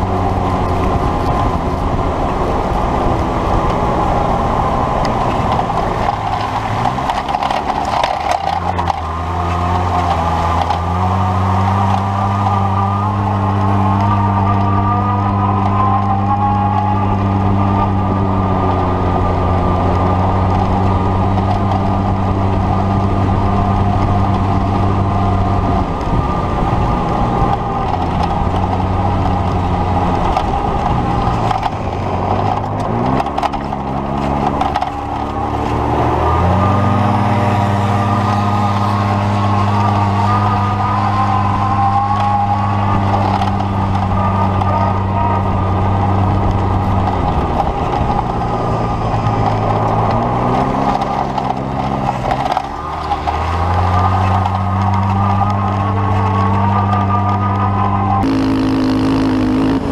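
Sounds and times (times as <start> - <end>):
motor running: 58.2 - 59.9.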